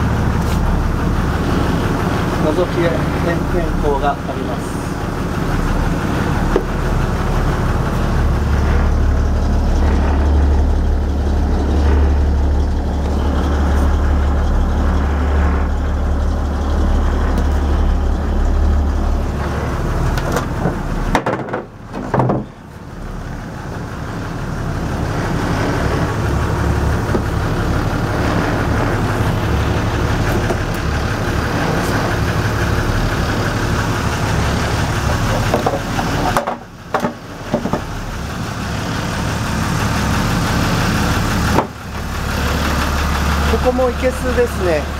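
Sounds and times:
engine idling: 0.0s - 44.9s.

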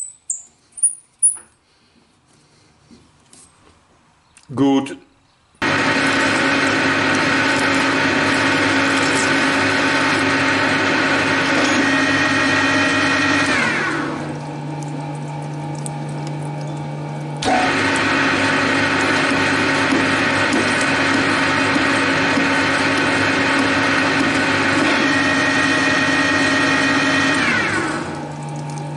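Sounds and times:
metal lathe whining: 17.4s - 28.7s.

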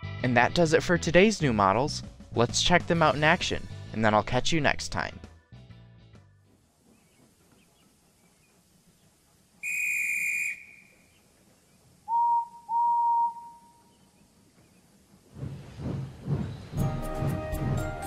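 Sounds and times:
shrill whistle blast: 9.6s - 11.0s, 12.1s - 13.8s
steam locomotive whistle toots: 9.6s - 11.0s, 12.0s - 13.9s.

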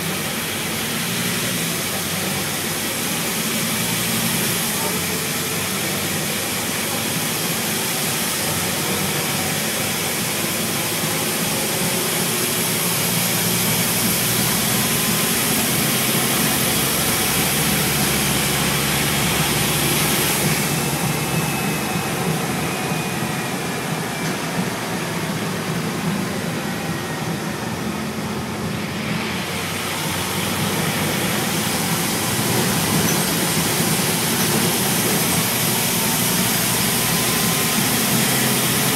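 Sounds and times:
bus diesel engine running: 0.0s - 38.9s
road and tyre noise: 0.0s - 38.9s
faint falling whine: 15.6s - 31.5s.

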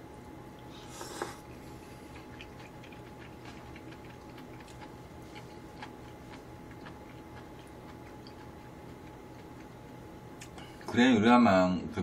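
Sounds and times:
faint steady hum: 0.0s - 12.0s
person eating noodles: 0.6s - 9.8s.

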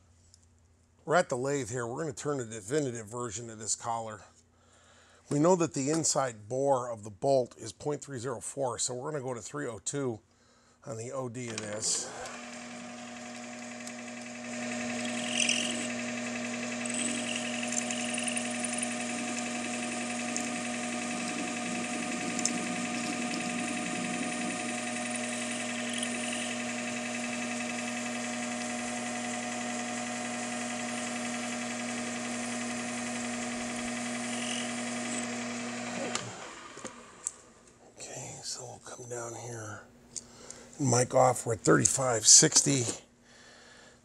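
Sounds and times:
metal lathe motor and gear hum: 11.6s - 37.4s.

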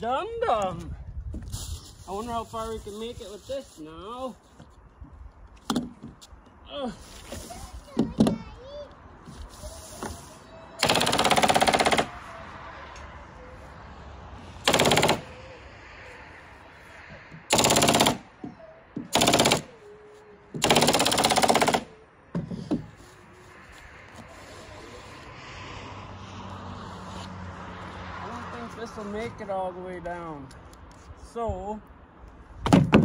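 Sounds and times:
nail gun rapid firing: 10.8s - 12.1s, 14.6s - 15.3s, 17.5s - 18.2s, 19.1s - 19.7s, 20.6s - 21.9s.

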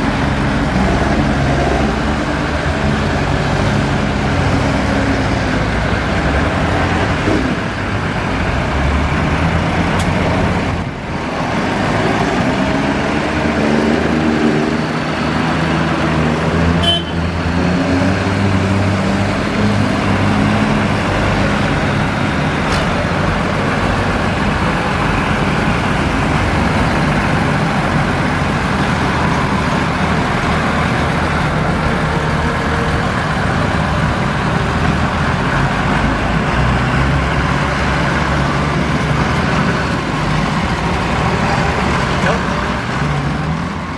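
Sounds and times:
diesel tractors driving past: 0.0s - 43.9s.

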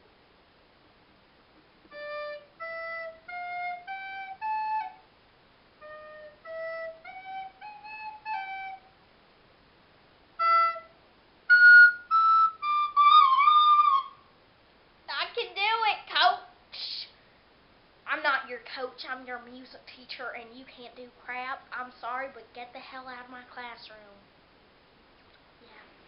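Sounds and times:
plastic recorder notes: 1.9s - 5.0s, 5.8s - 9.0s.

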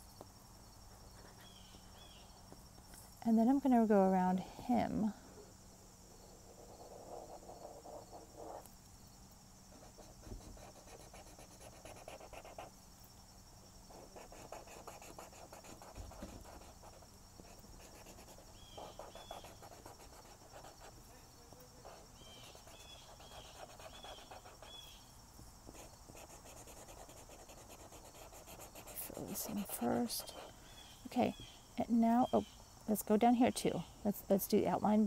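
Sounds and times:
marker scratching on paper: 6.8s - 8.7s, 9.7s - 12.7s, 13.9s - 21.0s, 21.8s - 24.8s, 25.7s - 30.5s.

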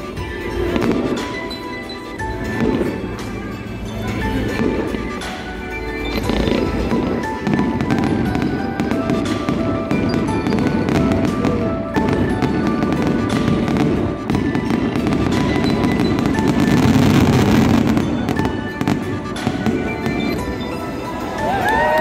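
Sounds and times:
fireworks bangs and crackles: 0.0s - 22.0s
music playing: 0.0s - 22.0s.

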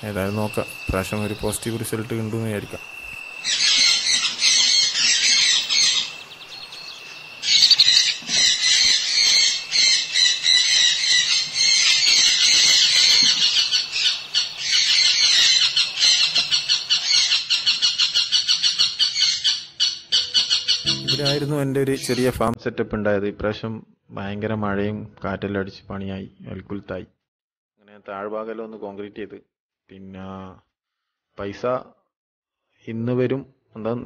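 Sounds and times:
parrot chicks begging squawks: 3.4s - 21.2s.

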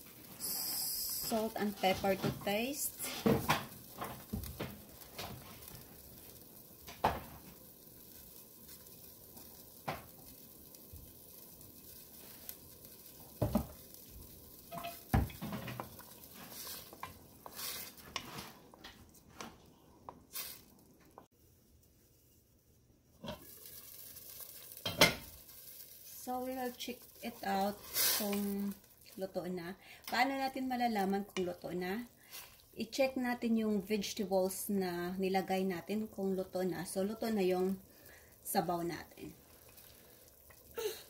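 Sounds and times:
soup bubbling in pot: 2.4s - 19.3s, 23.1s - 31.4s, 35.8s - 41.0s.

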